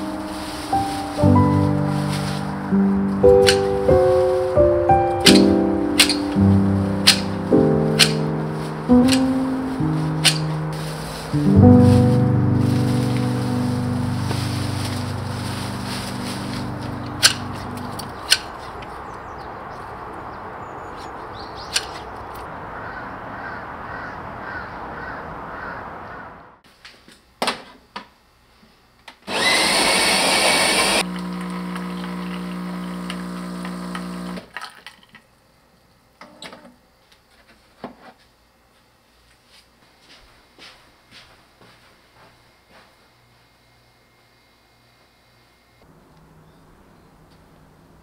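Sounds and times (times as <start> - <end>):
leaves rustling: 0.0 - 26.2
garden shears snipping stems: 3.3 - 3.9, 5.2 - 12.0, 14.2 - 19.0, 21.7 - 22.5
coffee machine whirring: 29.3 - 34.8.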